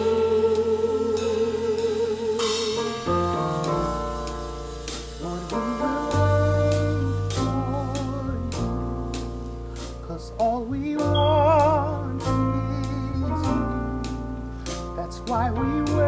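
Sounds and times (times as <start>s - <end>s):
gospel singers: 0.0s - 3.9s, 5.2s - 8.7s
bass guitar: 0.0s - 16.0s
piano: 0.0s - 16.0s.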